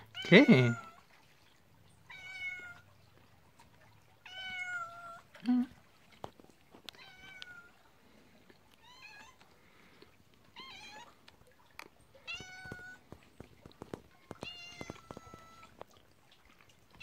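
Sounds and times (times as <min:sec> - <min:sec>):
cat meowing: 0:02.1 - 0:02.8, 0:04.2 - 0:05.2, 0:07.0 - 0:07.8, 0:10.5 - 0:11.1, 0:12.2 - 0:13.0, 0:14.3 - 0:15.7.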